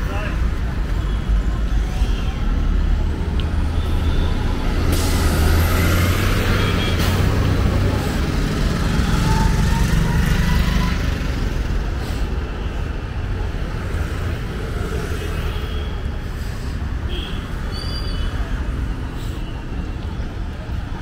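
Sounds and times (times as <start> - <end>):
traffic engines rumbling: 0.0 - 21.0.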